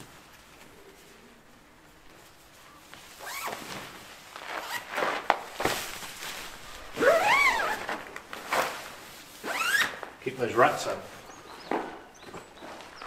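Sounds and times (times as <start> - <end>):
zip being pulled: 3.2 - 3.8, 4.4 - 5.3, 6.9 - 8.7, 9.4 - 10.0.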